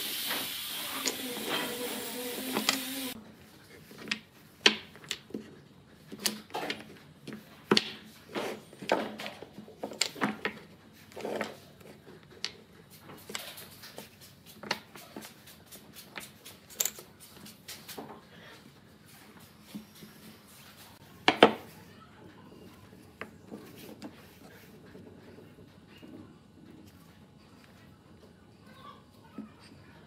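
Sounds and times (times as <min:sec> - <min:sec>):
wooden blocks knocking on wood: 0:07.6 - 0:08.0.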